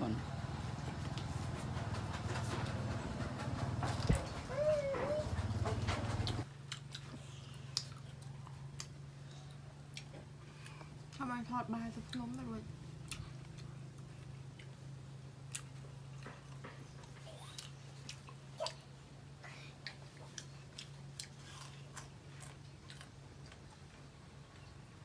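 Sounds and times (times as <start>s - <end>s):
person chewing food: 6.2s - 11.2s, 13.0s - 18.8s, 19.7s - 24.8s.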